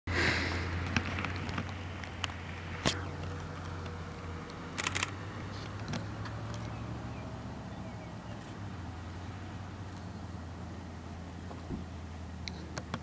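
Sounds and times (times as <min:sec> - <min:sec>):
vehicle engine idling: 0:00.2 - 0:13.0
camera shutter clicks: 0:04.8 - 0:05.2.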